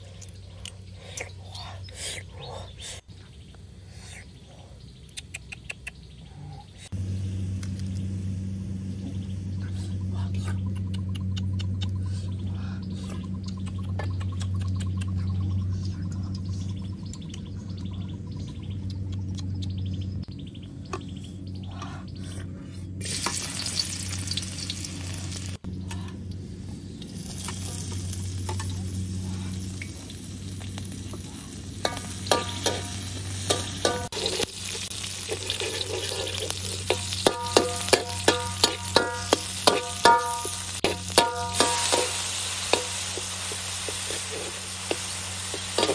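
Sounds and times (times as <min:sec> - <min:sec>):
steady low hum: 0:06.0 - 0:45.9
oil sizzling in a wok: 0:23.0 - 0:25.6, 0:27.1 - 0:45.9
metal spatula scraping a wok: 0:31.9 - 0:43.0, 0:43.8 - 0:45.9.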